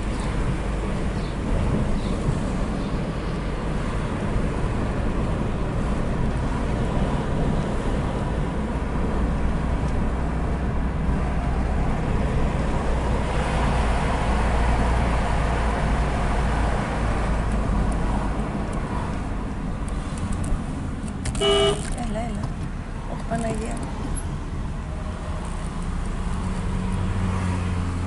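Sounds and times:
car cabin road and engine rumble: 0.0 - 28.0
short pitched beep: 21.4 - 21.8.

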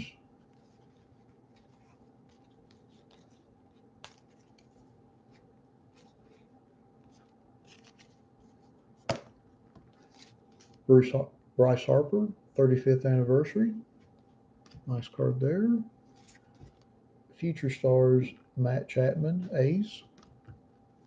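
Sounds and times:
cards sliding while flipped: 0.5 - 9.2.

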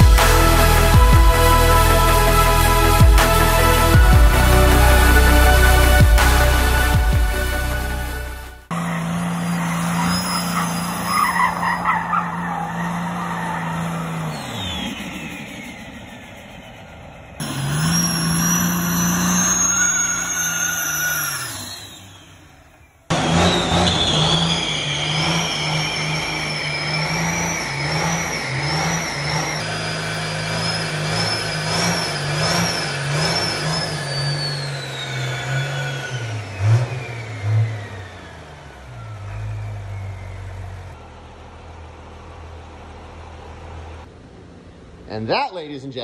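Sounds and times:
truck engine revving: 0.0 - 45.9
tyre squeal: 8.7 - 41.0.

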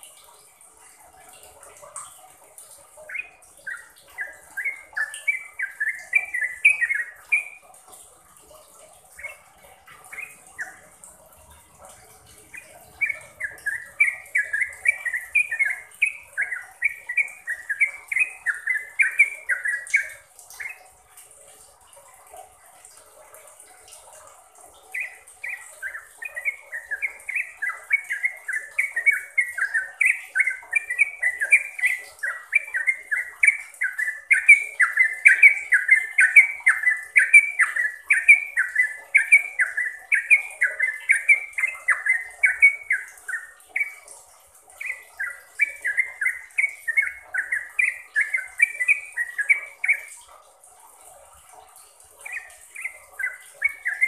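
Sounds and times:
bird singing bubbly chattering notes: 0.0 - 22.6, 23.6 - 50.3, 51.0 - 54.0.

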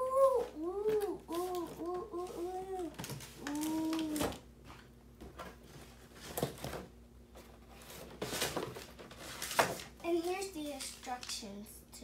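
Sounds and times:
toy packaging rustling: 0.8 - 4.4, 7.8 - 11.6.

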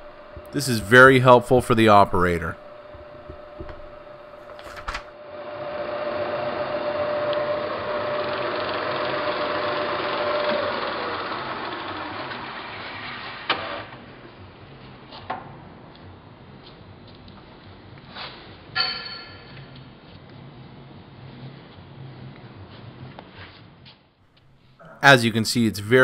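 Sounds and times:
drill press motor whining: 0.0 - 0.6, 2.6 - 4.6, 5.2 - 14.0.

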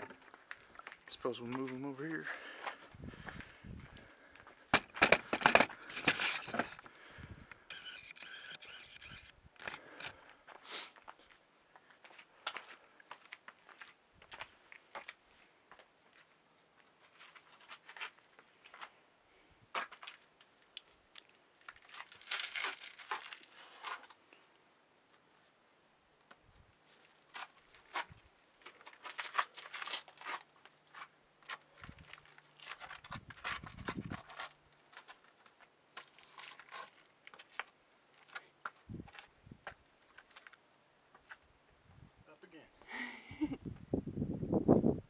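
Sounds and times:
rustling and scraping: 4.7 - 6.9, 16.9 - 19.0, 19.7 - 24.4, 26.2 - 39.4.

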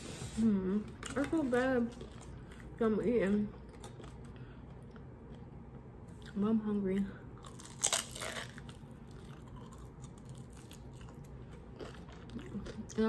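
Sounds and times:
chewing with small crunches: 0.9 - 13.0
crunchy bite: 7.4 - 11.2.

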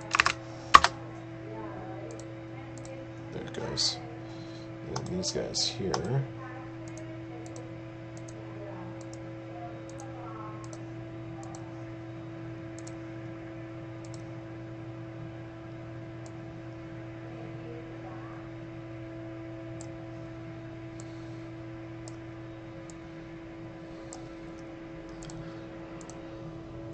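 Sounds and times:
computer mouse clicks: 0.0 - 0.9, 5.9 - 6.1, 6.8 - 8.4, 9.0 - 9.2, 9.9 - 10.8, 11.4 - 11.6, 12.8 - 13.0, 14.0 - 14.3, 24.1 - 25.4, 26.0 - 26.2
steady electrical hum: 0.0 - 26.9.

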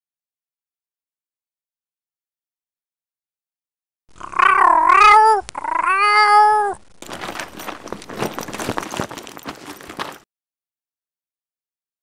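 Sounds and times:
cat meowing: 4.1 - 6.8
dense crackling rustling noise: 6.4 - 10.3.

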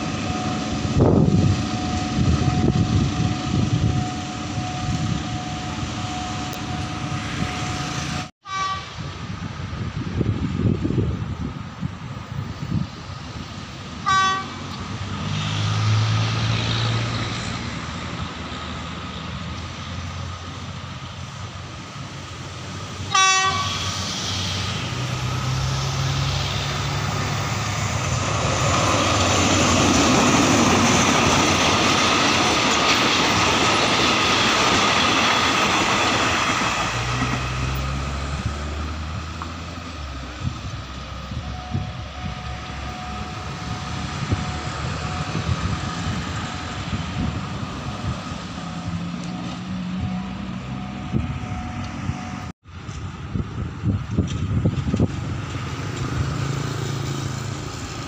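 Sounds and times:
locomotive engine droning: 0.0 - 58.0
train horn blasts: 8.4 - 9.0, 14.0 - 14.8, 23.1 - 23.9
train wheels clattering on rails: 26.8 - 38.2, 53.9 - 58.0.

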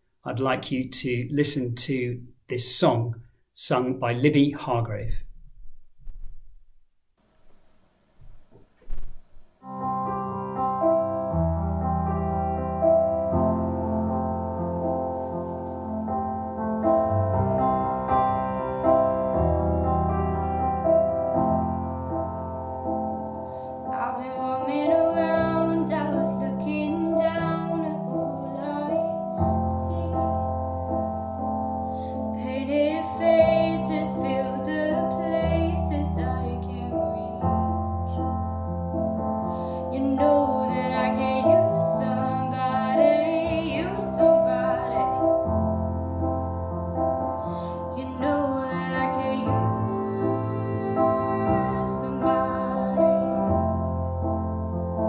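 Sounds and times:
piano chords: 9.6 - 55.0
young woman singing: 23.9 - 30.5, 32.3 - 37.9, 39.8 - 45.4, 47.9 - 53.7.

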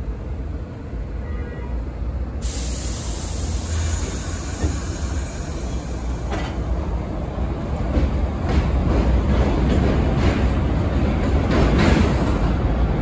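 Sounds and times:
subway train rumble: 0.0 - 13.0
hiss: 2.4 - 6.3.

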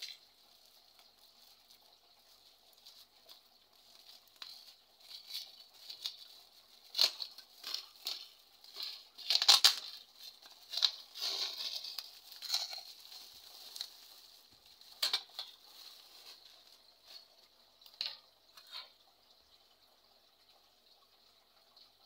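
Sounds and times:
plastic wrap crinkling and tearing: 0.0 - 18.2
scissors cutting plastic: 4.0 - 14.0.

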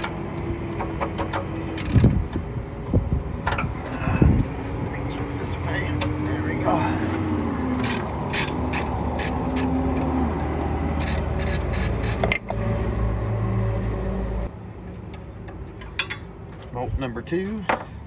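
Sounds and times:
engine running: 0.0 - 16.2
socket ratchet clicking: 1.8 - 2.1, 7.8 - 9.7, 11.0 - 12.3.

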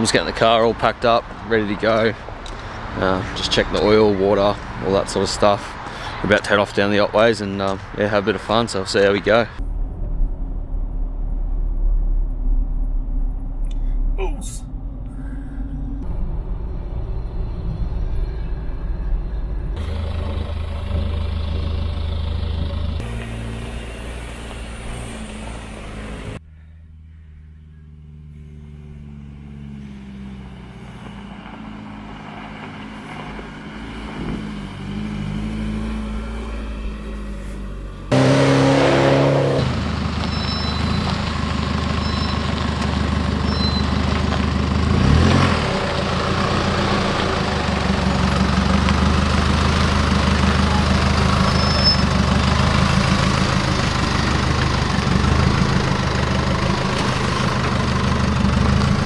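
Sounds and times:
diesel engine running under load: 11.6 - 26.4, 27.0 - 59.0.

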